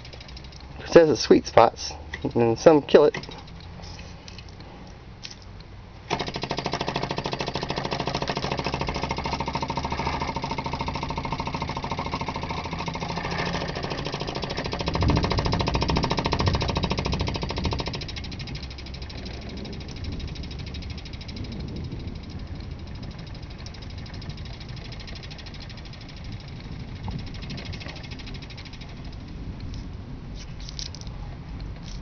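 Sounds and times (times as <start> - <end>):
stirling engine piston knocking: 0.0 - 0.8, 6.1 - 29.3.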